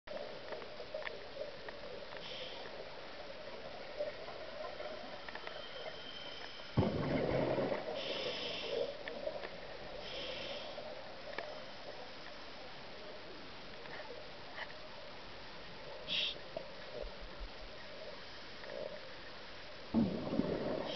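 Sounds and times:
steady underwater hiss: 0.1s - 20.9s
regulator hissing inhalations: 2.2s - 2.7s, 8.0s - 9.0s, 10.0s - 10.9s, 16.1s - 16.4s
rumbling burst of bubbles: 6.8s - 8.2s, 19.9s - 20.9s.

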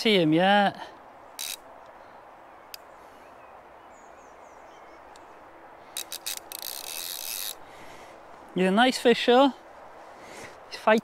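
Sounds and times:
fishing reel rasp: 1.4s - 1.6s, 5.9s - 7.6s.

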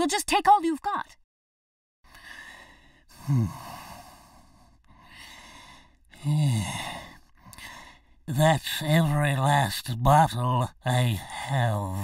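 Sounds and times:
person sighing: 3.1s - 4.1s, 6.2s - 7.8s.

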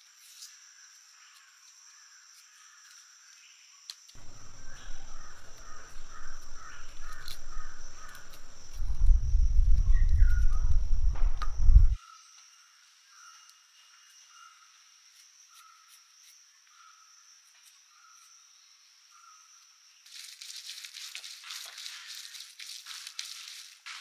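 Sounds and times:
crows cawing: 4.2s - 9.2s
loud low rumble: 4.2s - 12.0s
high insect drone: 4.2s - 17.6s.

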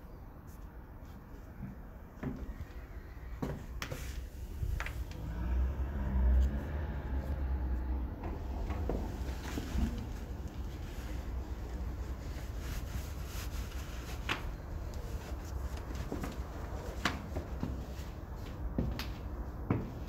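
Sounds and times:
steady low rumble: 0.0s - 20.0s
heels clicking on tiled floor: 15.8s - 20.0s.

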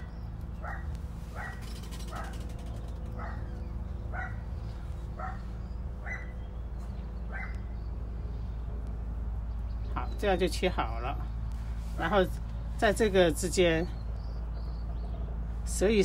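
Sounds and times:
dog barking: 0.0s - 2.4s, 3.2s - 3.5s, 4.1s - 4.4s, 5.2s - 6.4s, 7.3s - 7.6s
steady low hum: 0.0s - 16.0s.

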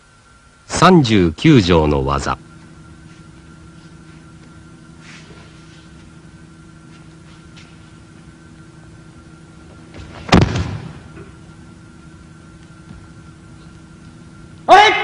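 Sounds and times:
low film soundtrack hum: 0.0s - 15.0s
body thudding onto mat: 9.9s - 11.0s.

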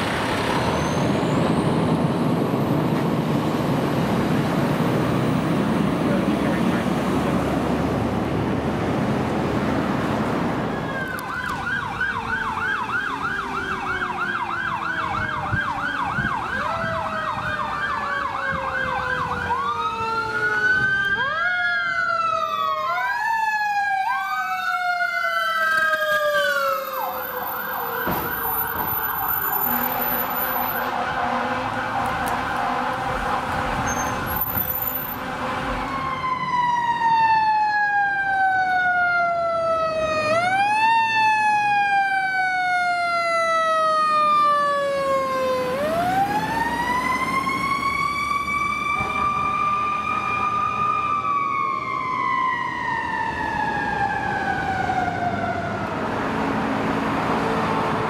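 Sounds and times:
fire truck siren wailing: 0.0s - 58.0s
second siren falling in pitch: 35.8s - 56.0s.

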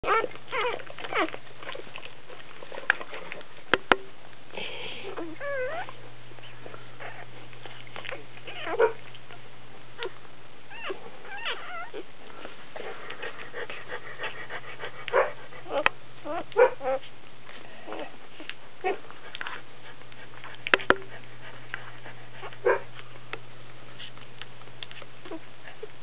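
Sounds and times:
puppies squeaking and whining: 0.0s - 2.4s, 5.1s - 9.4s, 10.0s - 12.1s, 15.6s - 19.7s
steady low hum: 0.0s - 26.0s.

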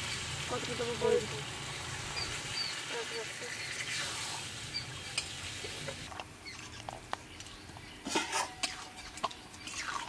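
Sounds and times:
metal spatula scraping a pot: 8.0s - 10.0s.

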